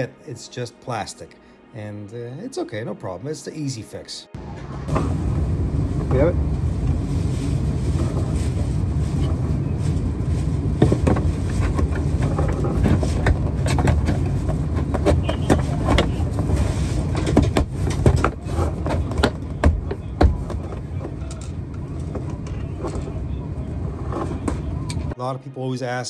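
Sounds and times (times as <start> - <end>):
steady low rumble: 4.4 - 25.2.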